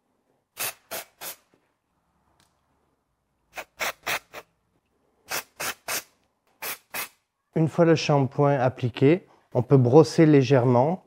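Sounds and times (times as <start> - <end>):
aerosol spray hissing: 0.6 - 1.5, 3.6 - 4.4, 5.3 - 7.2.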